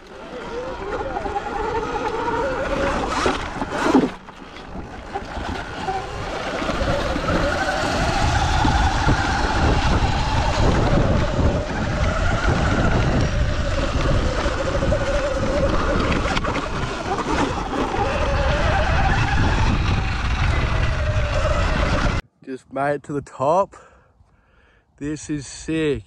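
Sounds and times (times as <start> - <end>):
electric motor whine: 0.0 - 22.2
wind rumble on microphone: 4.7 - 22.2.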